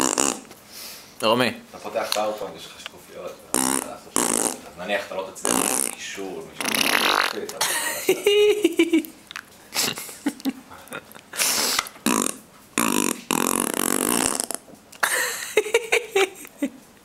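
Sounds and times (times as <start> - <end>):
person blowing raspberries: 0.0 - 0.6, 3.5 - 4.6, 5.4 - 6.0, 6.6 - 7.4, 11.3 - 14.7
person making burp-like sounds: 3.5 - 4.6, 5.4 - 6.0, 6.6 - 7.5, 12.0 - 14.6.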